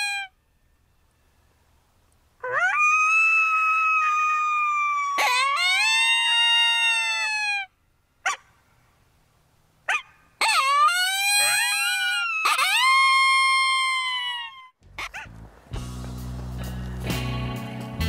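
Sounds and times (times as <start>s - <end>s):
coyote yips: 0.0s - 0.3s, 2.4s - 8.5s, 9.9s - 15.4s
coyote howling: 2.4s - 8.4s, 9.9s - 15.3s.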